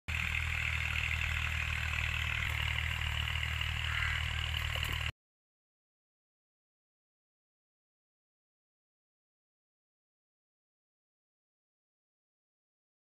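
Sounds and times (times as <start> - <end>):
engine idling hum: 0.1 - 5.1.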